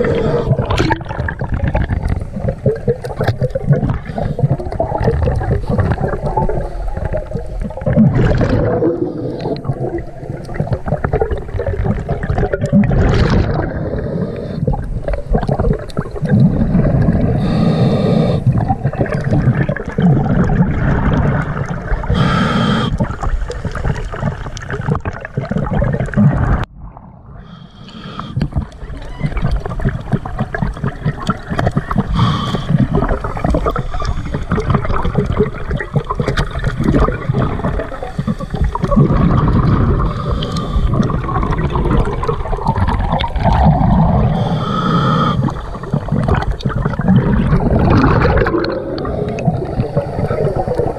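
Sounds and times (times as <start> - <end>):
gurgling bubble exhales: 0.0 - 50.9
regulator hissing inhales: 17.4 - 18.5, 22.1 - 23.0, 27.4 - 28.5, 32.1 - 32.8, 40.1 - 41.0, 44.3 - 45.7.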